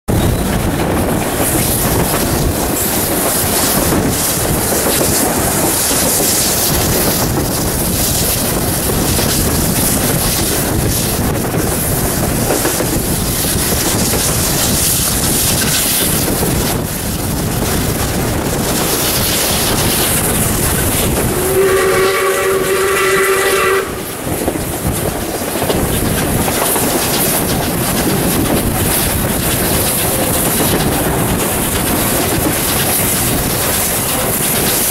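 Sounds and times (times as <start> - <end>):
steam locomotive working: 0.1 - 34.9
chime steam whistle: 21.3 - 24.2.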